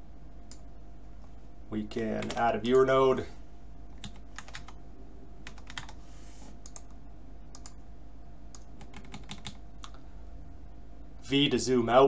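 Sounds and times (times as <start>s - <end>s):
steady low hum: 0.0s - 12.0s
computer keyboard typing: 2.2s - 2.4s, 3.9s - 4.8s, 5.4s - 6.0s, 6.6s - 7.8s, 8.5s - 10.0s.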